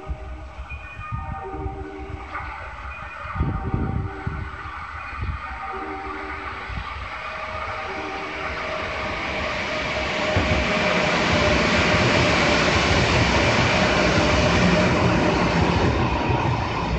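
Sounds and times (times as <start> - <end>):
electric train passing: 0.0 - 16.9.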